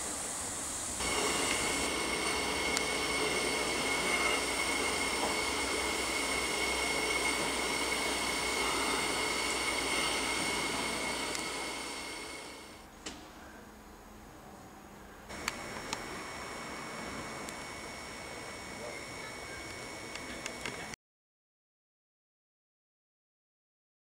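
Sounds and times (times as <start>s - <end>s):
steam hissing: 0.0s - 12.8s, 15.3s - 21.0s
high whining tones: 0.9s - 12.8s, 15.3s - 21.0s.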